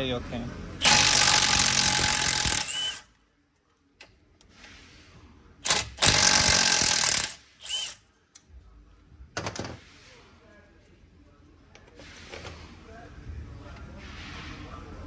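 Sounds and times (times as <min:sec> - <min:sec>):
power tool running in bursts: 0:00.8 - 0:03.0, 0:05.7 - 0:07.9.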